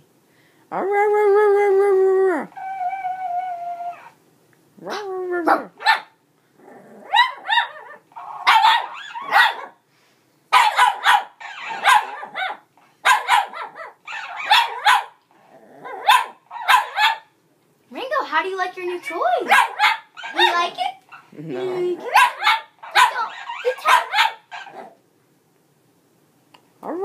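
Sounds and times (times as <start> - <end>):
puppy barking and growling: 4.8 - 9.8, 10.5 - 17.4, 18.8 - 25.0
puppy yelp: 7.1 - 9.8, 10.6 - 15.2, 15.9 - 17.3, 18.9 - 25.0.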